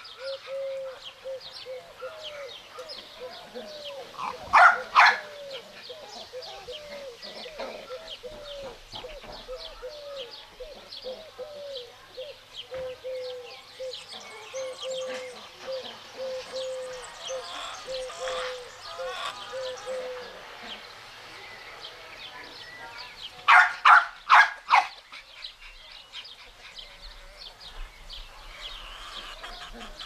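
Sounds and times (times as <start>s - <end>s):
small birds chirping: 0.0s - 30.0s
chicken clucking: 14.1s - 20.9s, 28.4s - 30.0s.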